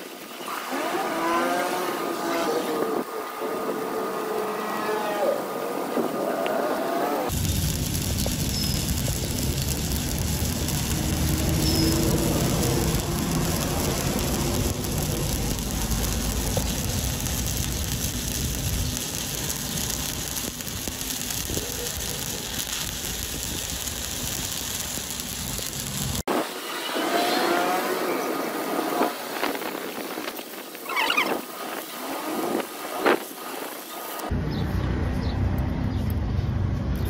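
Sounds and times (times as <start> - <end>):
welding arc crackling: 7.1 - 34.3.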